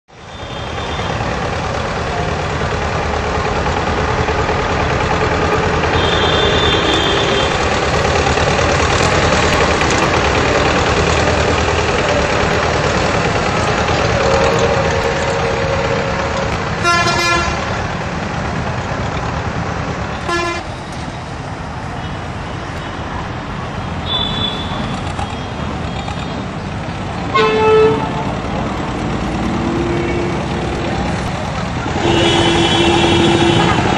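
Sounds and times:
tractor engine running: 0.7 - 21.8, 28.0 - 33.9.

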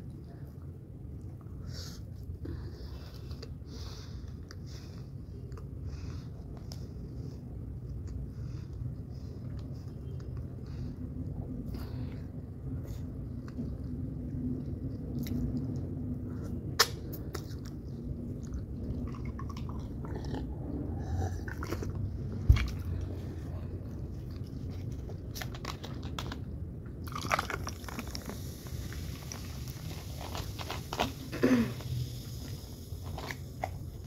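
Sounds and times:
chewing and wet mouth clicks: 12.8 - 23.2.

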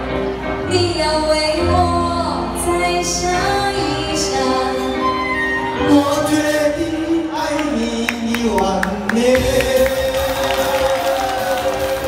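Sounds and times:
woman singing into a microphone: 0.6 - 6.2.

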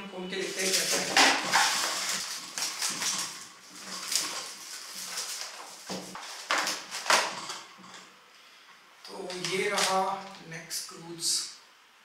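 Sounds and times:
plastic packaging crinkling: 0.4 - 7.7, 9.2 - 10.4.

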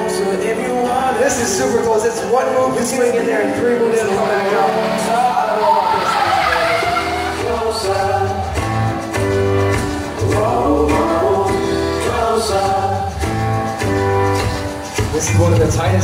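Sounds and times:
music with singing: 0.0 - 16.0
steady bass notes: 6.9 - 16.0.

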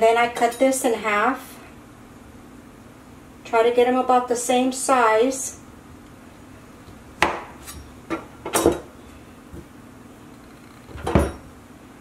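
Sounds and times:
knife chopping dough on board: 7.2 - 8.8.

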